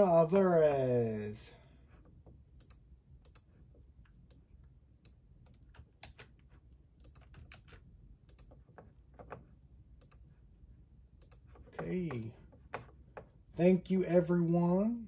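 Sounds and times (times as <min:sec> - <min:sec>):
faint keyboard typing: 0:01.9 - 0:10.4, 0:11.2 - 0:13.4.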